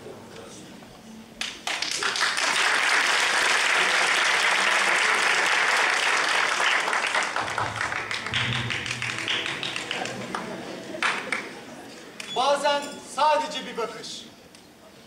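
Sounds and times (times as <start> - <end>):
audience applauding: 1.4 - 11.7.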